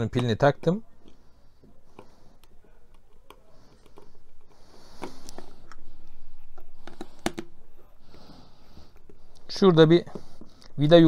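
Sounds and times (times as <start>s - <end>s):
screwdriver scratching and clicking: 2.0s - 4.1s.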